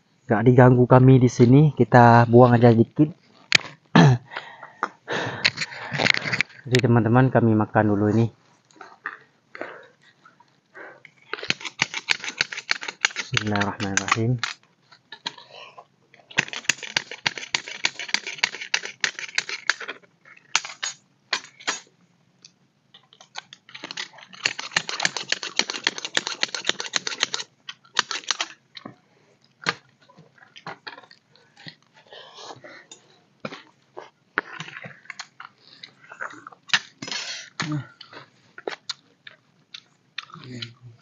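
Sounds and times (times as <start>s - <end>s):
chewing: 8.7s - 13.7s, 23.0s - 36.9s, 37.8s - 41.0s
spoons clicking on plastic plates: 11.4s - 14.6s, 16.3s - 20.0s, 23.2s - 28.6s.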